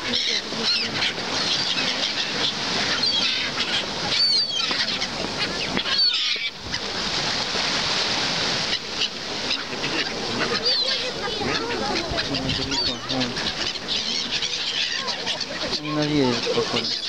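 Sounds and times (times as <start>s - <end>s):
small waves breaking on concrete: 0.0s - 12.4s
gulls squawking: 0.0s - 17.0s.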